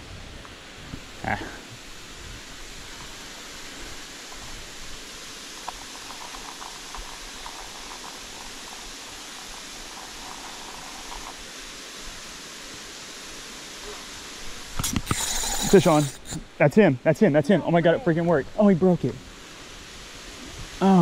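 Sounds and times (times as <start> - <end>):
faint small ticks: 4.2 - 11.4.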